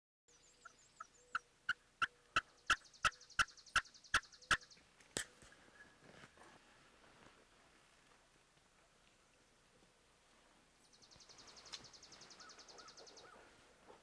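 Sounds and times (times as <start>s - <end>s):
high songbird trill: 10.9s - 13.4s
wild turkey yelping: 12.4s - 13.5s.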